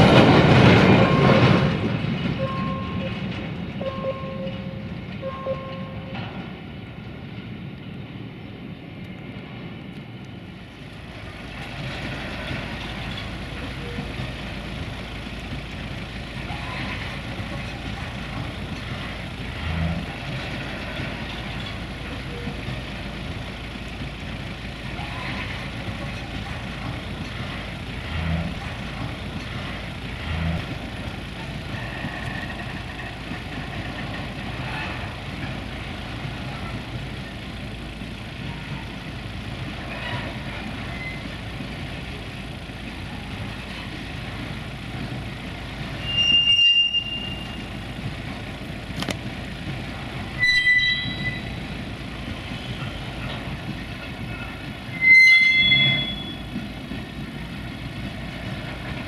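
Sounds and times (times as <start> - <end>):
freight wagons rumbling on rails: 0.0 - 59.0
high-pitched wheel squeals: 40.9 - 41.3, 46.0 - 47.7, 50.3 - 51.6, 54.9 - 56.5.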